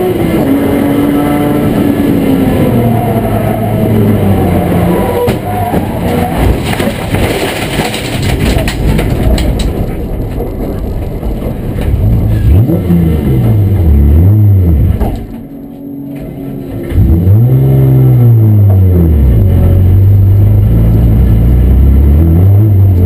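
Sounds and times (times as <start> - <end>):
race car engine revving: 0.0 - 8.8, 11.8 - 23.0
rattling and clattering: 5.3 - 12.6, 14.8 - 17.1.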